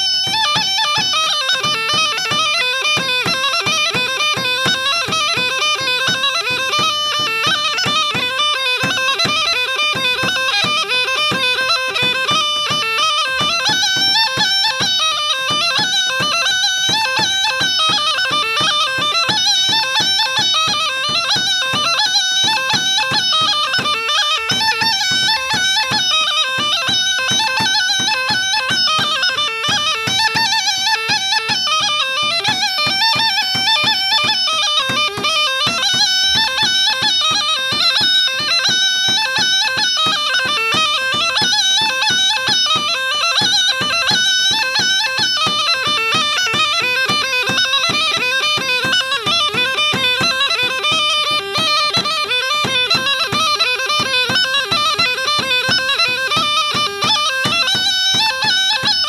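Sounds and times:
bagpipe folk dance melody: 0.0s - 59.0s.

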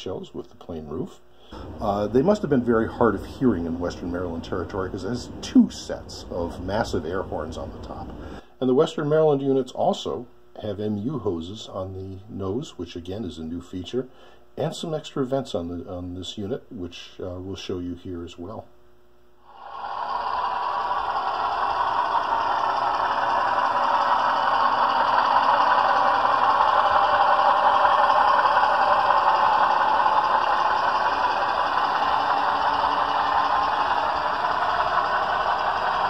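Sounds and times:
model train wheels rattling on rail: 19.6s - 36.0s.

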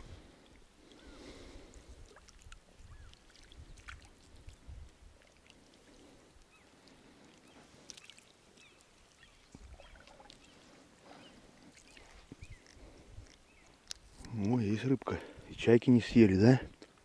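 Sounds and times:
faint bird calls: 0.8s - 1.6s, 2.2s - 4.0s, 5.4s - 13.9s
water dripping and splashing: 1.8s - 10.7s, 11.6s - 14.6s.

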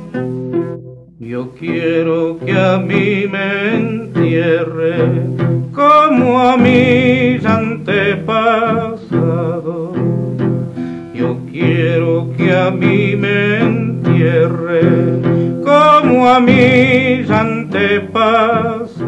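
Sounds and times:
accompanying instruments: 0.0s - 19.0s
person singing with vibrato: 1.1s - 19.0s.

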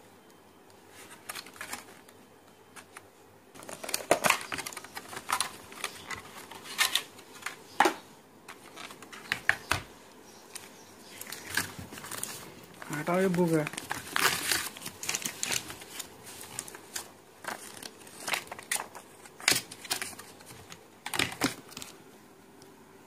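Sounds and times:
plastic packaging clicks and crackles: 1.0s - 9.9s, 10.5s - 22.0s
paper leaflet rustling: 10.5s - 22.0s.

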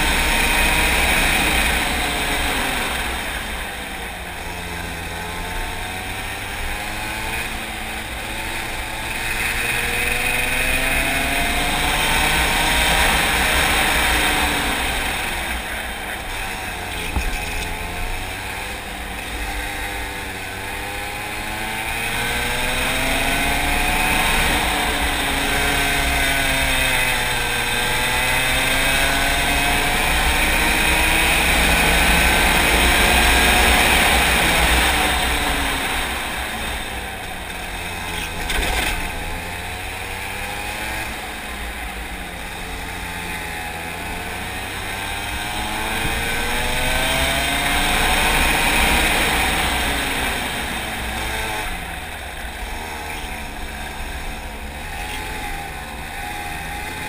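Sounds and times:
kart engine revving: 0.0s - 57.0s.

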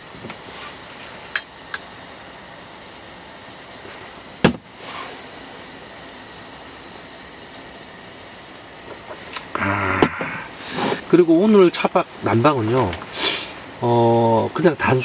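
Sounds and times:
steady low hiss: 0.0s - 15.0s.

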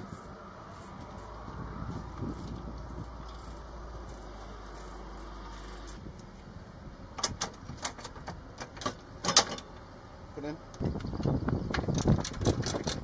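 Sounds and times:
metallic clicks and clacks: 10.7s - 13.0s.

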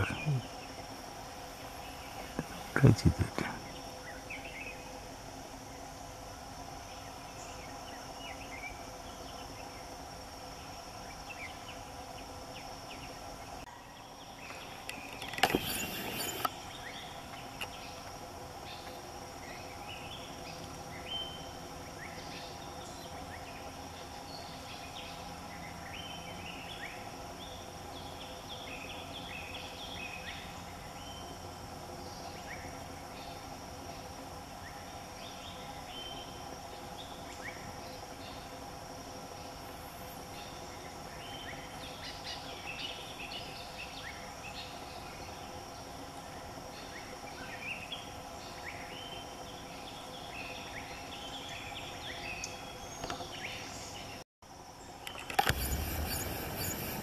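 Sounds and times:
insect drone: 0.0s - 57.0s.

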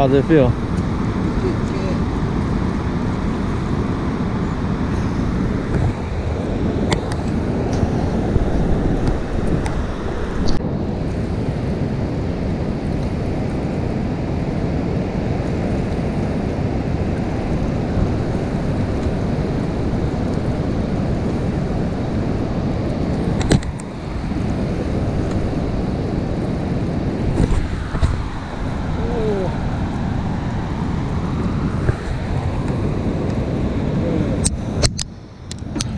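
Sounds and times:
water roaring through spillway: 0.0s - 35.9s
wind buffeting microphone: 0.0s - 35.9s.

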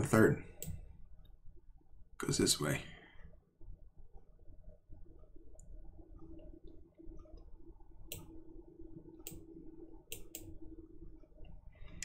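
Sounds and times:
faint low hum: 0.0s - 12.0s
computer mouse clicks: 0.6s - 0.8s, 8.1s - 8.3s, 9.2s - 9.5s, 10.1s - 10.6s.

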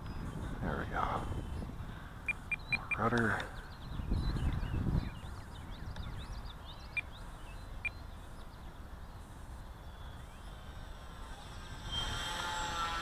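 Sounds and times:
small birds chirping: 0.0s - 12.8s
wind buffeting microphone: 0.0s - 13.0s
high bird peeps: 1.3s - 8.5s.

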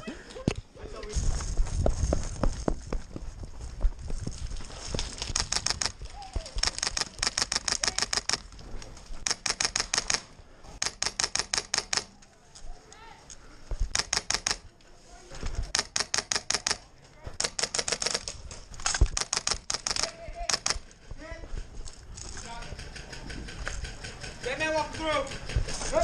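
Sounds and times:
airsoft rifle full-auto bursts: 5.3s - 6.0s, 6.6s - 8.4s, 9.2s - 12.2s, 13.9s - 14.7s, 15.7s - 16.8s, 17.4s - 18.3s, 19.2s - 20.9s.

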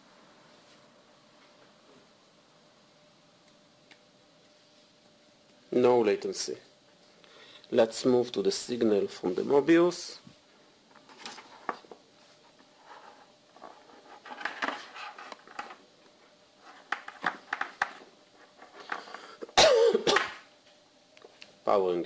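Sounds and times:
clicks and rustles of cables: 13.6s - 15.8s, 16.6s - 19.2s
loud cough: 19.5s - 20.4s.

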